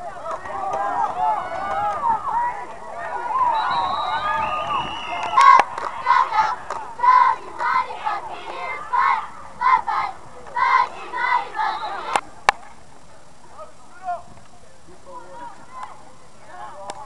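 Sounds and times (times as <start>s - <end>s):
cheerleaders chanting: 5.0s - 12.2s.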